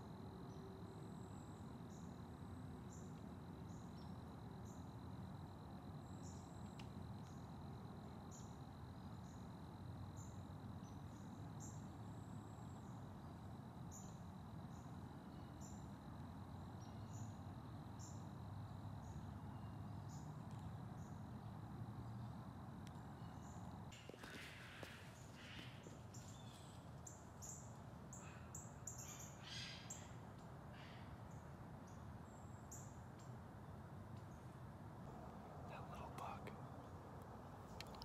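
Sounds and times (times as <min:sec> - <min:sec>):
high insect trill: 0:00.0 - 0:33.0
low rumbling hiss: 0:24.6 - 0:38.0.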